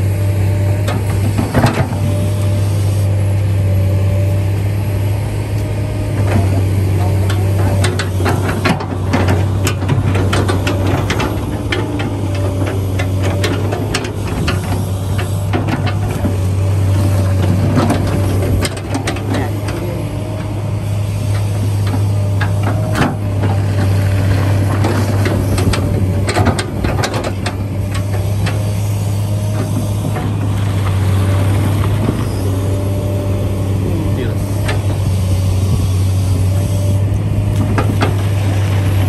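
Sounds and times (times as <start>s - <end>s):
low engine hum: 0.0s - 39.0s
scattered clicks and knocks: 6.2s - 19.8s, 21.3s - 28.7s.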